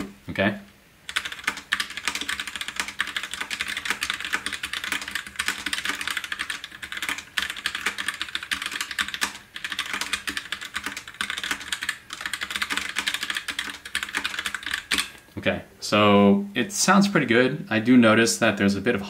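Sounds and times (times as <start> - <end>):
mechanical keyboard typing: 1.0 - 15.2.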